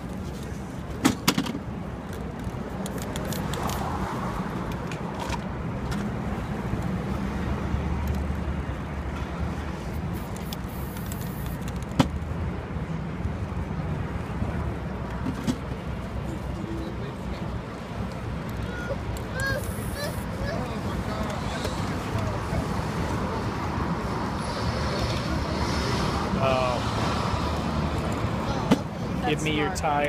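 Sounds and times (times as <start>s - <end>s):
city street traffic rumble: 0.0s - 30.0s.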